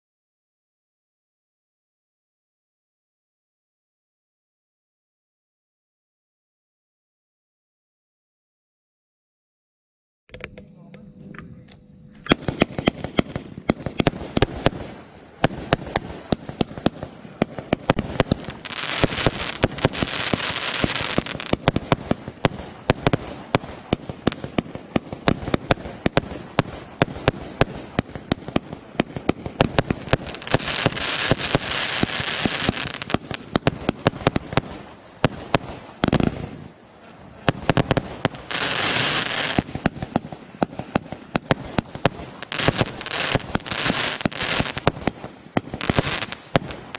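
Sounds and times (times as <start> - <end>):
firework hissing crackle: 12.0 - 46.9
firework launch thumps and bursts: 12.2 - 18.4.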